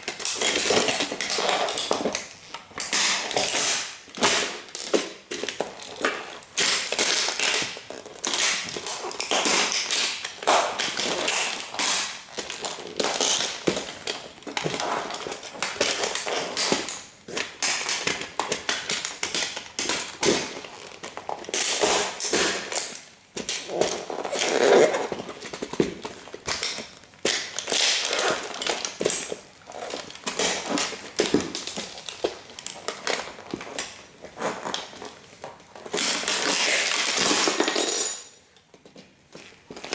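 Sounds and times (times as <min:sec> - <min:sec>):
toy car crunching under boots: 0:00.0 - 0:38.2.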